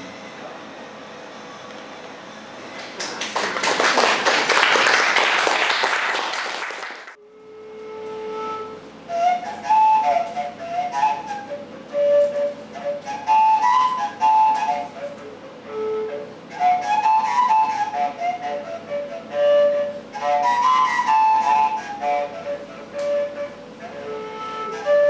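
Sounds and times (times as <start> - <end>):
audience applauding: 2.8 - 7.2
flute melody: 7.1 - 25.0.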